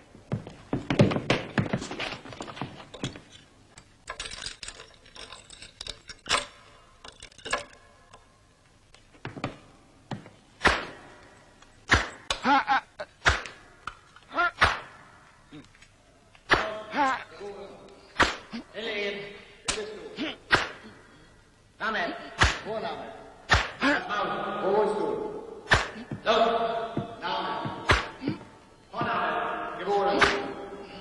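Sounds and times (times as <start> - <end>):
scuffling: 0.1 - 3.5
hard blows: 25.3 - 31.0.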